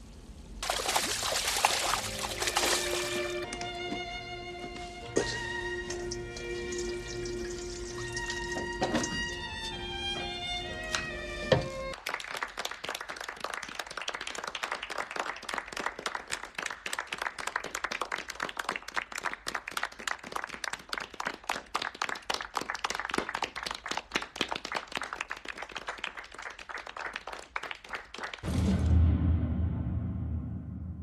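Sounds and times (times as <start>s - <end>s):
group of people clapping: 12.0s - 28.5s.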